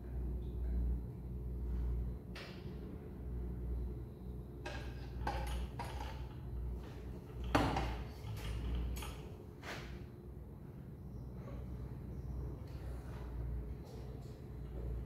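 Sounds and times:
steady low hum: 0.0s - 15.0s
metal clunks and knocks: 4.6s - 9.3s.

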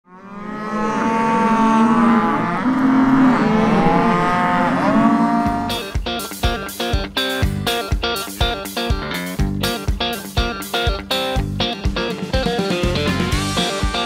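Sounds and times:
cattle mooing and bawling: 0.1s - 6.0s
guitar music with strong beat: 5.5s - 14.0s.

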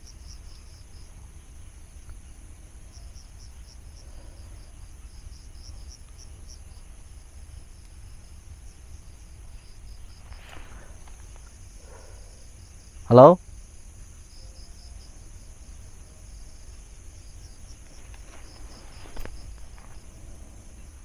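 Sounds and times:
crickets chirping: 0.0s - 21.0s
low steady rumble: 0.0s - 21.0s
brief rustle: 10.2s - 11.5s, 17.8s - 20.1s.

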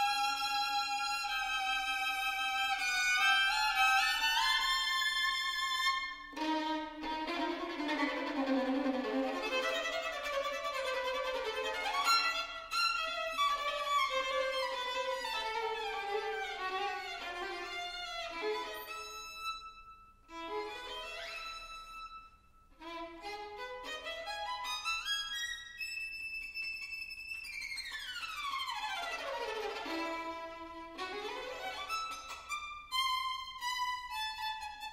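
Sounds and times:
solo violin fast runs: 0.0s - 19.4s.

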